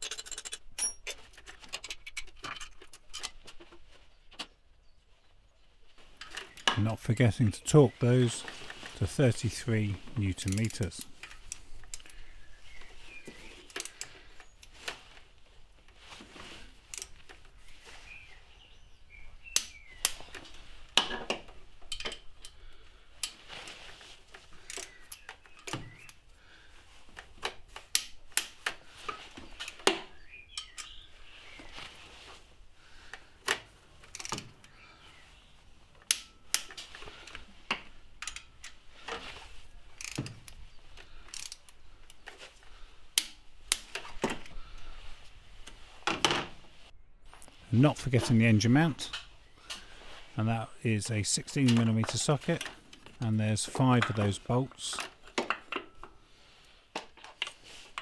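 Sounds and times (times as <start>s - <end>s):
torque wrench ratchet clicks: 40.0s - 40.3s, 41.3s - 41.6s.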